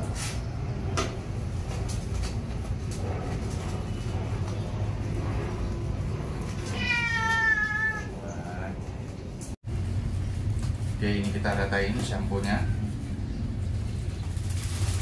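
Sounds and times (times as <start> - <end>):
steady low rumble: 0.0 - 15.0
cat meowing: 6.6 - 8.3.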